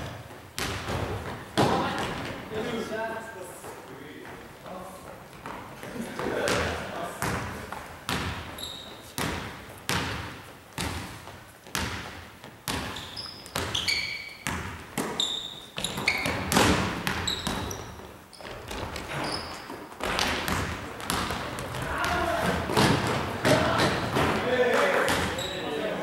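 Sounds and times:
basketball dribbling on wooden floor: 0.0 - 2.3, 8.1 - 8.6, 9.2 - 15.2, 15.8 - 24.4
sneaker squeaks: 8.1 - 12.0, 12.7 - 24.2, 25.0 - 25.9.

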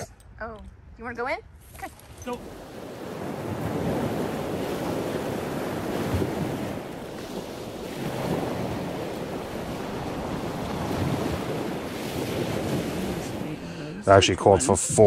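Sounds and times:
wind noise on microphone: 0.0 - 13.5.

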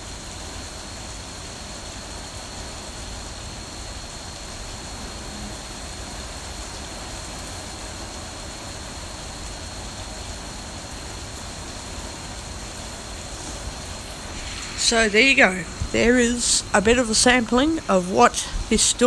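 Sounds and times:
heavy rain hissing: 0.0 - 19.0
faint high steady tone: 13.5 - 19.0
low rumble: 13.9 - 17.9.

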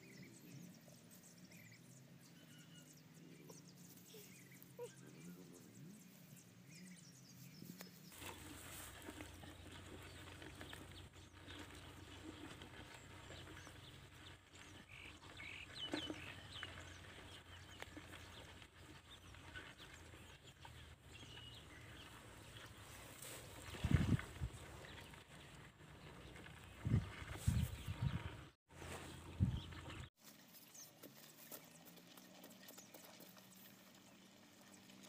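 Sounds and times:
hands digging dry soil: 7.5 - 14.9.

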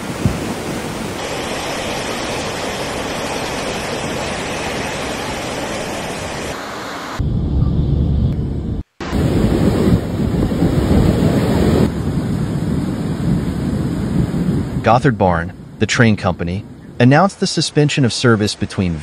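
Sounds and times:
river rushing: 0.0 - 7.2.

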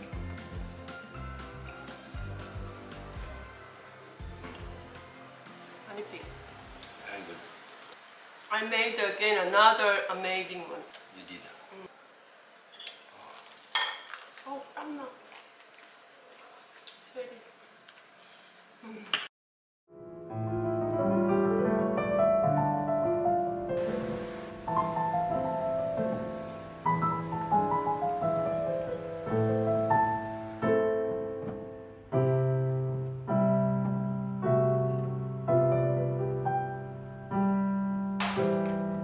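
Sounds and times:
slow solo piano piece: 20.0 - 39.0.

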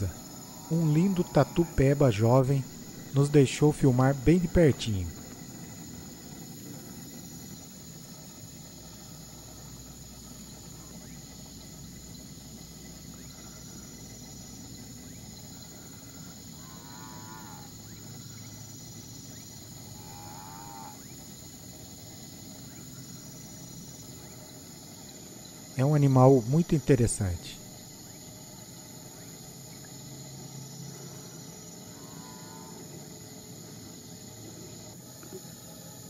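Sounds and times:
wavering animal calls: 0.0 - 7.0, 15.0 - 18.6, 19.3 - 21.3, 30.8 - 33.2
insect chorus high-pitched tone: 0.0 - 36.0.

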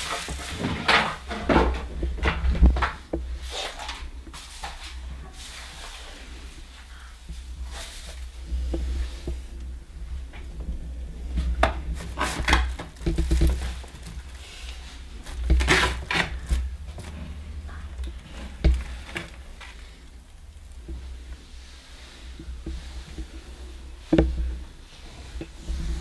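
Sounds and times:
plastic bag rustling: 0.0 - 2.0, 11.2 - 21.4
low steady hum: 0.0 - 26.0.

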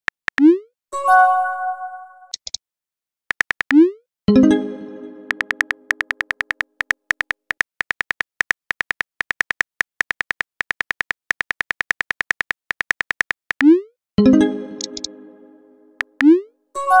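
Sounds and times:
phone keyboard tap clicks: 5.3 - 13.6.

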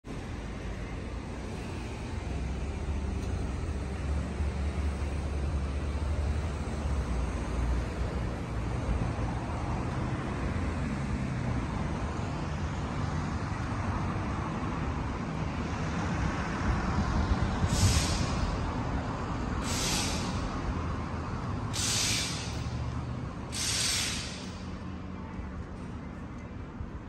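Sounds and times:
short hisses: 17.7 - 18.6, 19.6 - 20.6, 21.7 - 22.8, 23.5 - 24.7.

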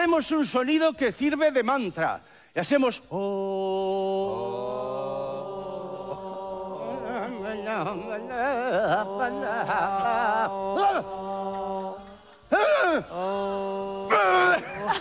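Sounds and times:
voices chanting a held hum: 3.1 - 15.0.

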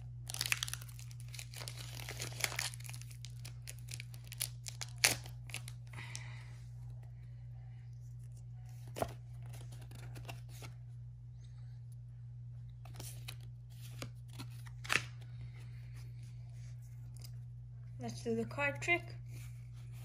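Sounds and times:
foil wrapper crinkling: 0.0 - 6.2
steady low hum: 0.0 - 20.0
trading cards being handled: 0.3 - 5.8, 8.1 - 10.8, 12.8 - 17.5.

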